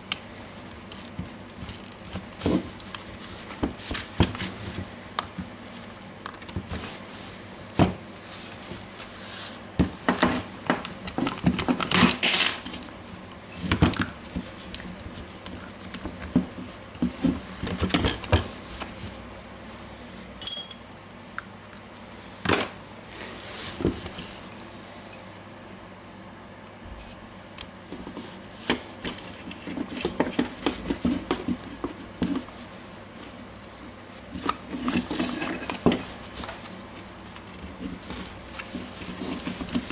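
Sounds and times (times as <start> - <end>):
short metallic ring: 20.4 - 20.9.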